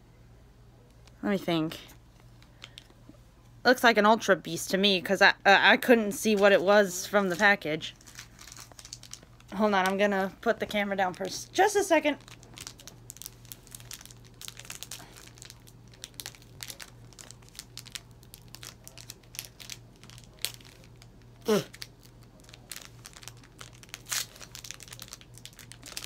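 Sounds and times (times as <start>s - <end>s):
foil pack crinkling: 6.3s - 26.0s.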